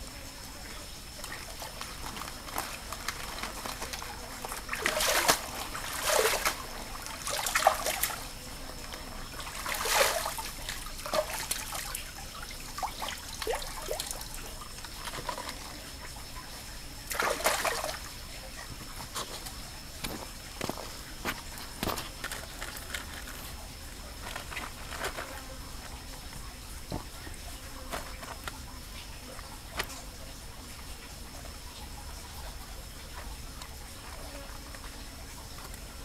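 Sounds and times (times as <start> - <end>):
leaves splashing in stream water: 1.1 - 8.4, 9.2 - 16.4, 17.0 - 18.2
water dripping: 1.1 - 19.0.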